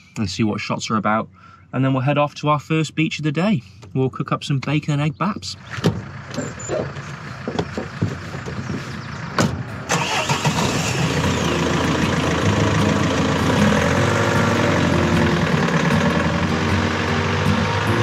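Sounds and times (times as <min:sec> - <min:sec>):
van engine starting and idling: 0:05.5 - 0:18.0
van door shutting: 0:09.4 - 0:10.7.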